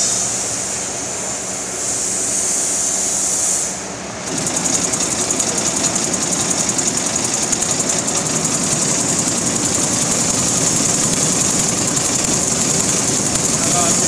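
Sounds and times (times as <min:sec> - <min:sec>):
nut chopping machine rattling: 0:04.2 - 0:14.0.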